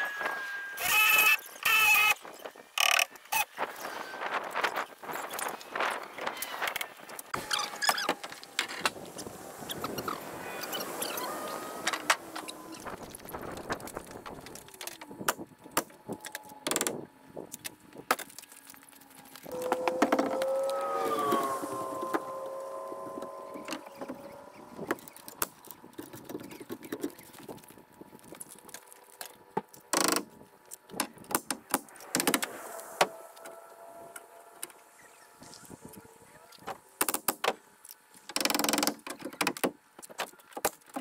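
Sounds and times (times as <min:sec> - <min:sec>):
machine hum: 0:07.4 - 0:28.1, 0:31.8 - 0:37.0.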